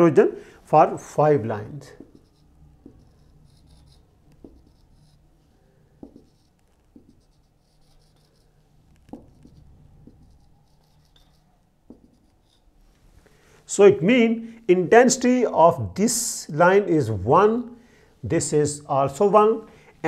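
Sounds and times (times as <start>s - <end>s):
marker squeaking on whiteboard: 1.7s - 12.8s
pen knocking on board: 4.4s - 4.8s, 6.0s - 7.2s, 9.0s - 10.3s, 11.9s - 12.2s.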